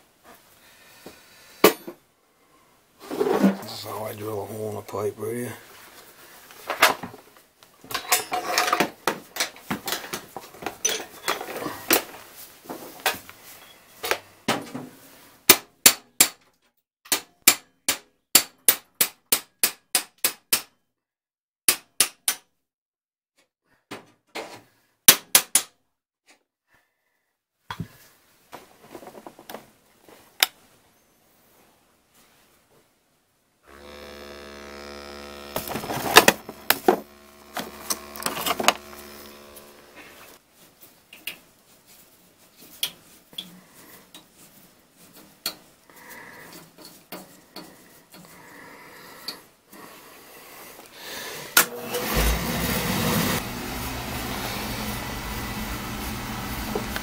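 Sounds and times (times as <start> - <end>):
cordless drill grinding into metal: 33.7 - 40.4, 51.6 - 53.4.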